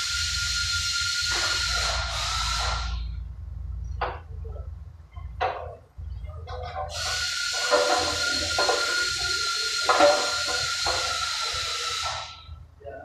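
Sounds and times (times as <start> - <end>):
loud hiss with whistling tone: 0.0 - 3.0, 7.0 - 12.4
knocks and clatters: 3.9 - 7.0.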